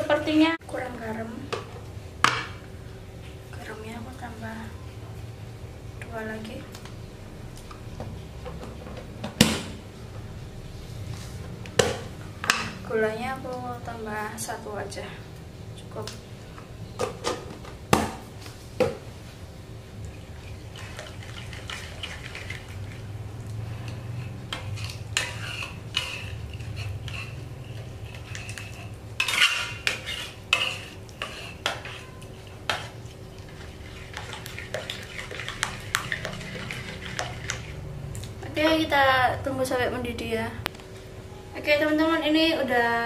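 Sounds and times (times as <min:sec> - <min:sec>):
metal spatula scraping pan: 0:20.8 - 0:23.1, 0:23.8 - 0:37.8.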